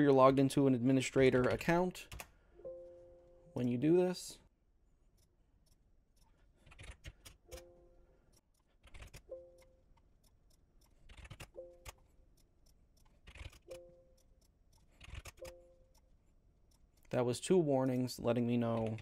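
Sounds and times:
keystrokes: 0:10.8 - 0:12.1, 0:13.0 - 0:16.0, 0:18.6 - 0:19.0.

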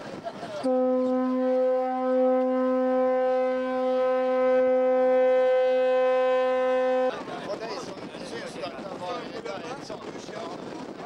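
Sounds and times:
ship's horn blast: 0:00.6 - 0:07.2.

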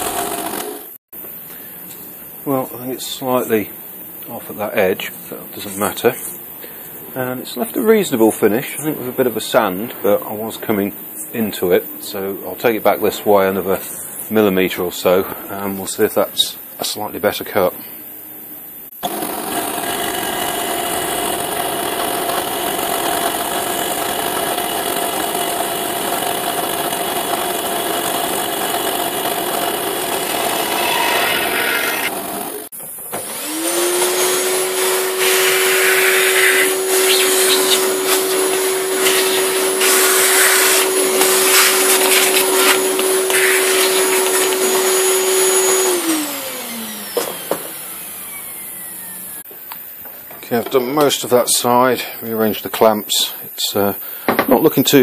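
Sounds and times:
milling machine cutting wood: 0:00.0 - 0:01.0, 0:19.0 - 0:49.4
spindle whine: 0:30.1 - 0:55.0
stepper motor hiss: 0:30.3 - 0:50.0.

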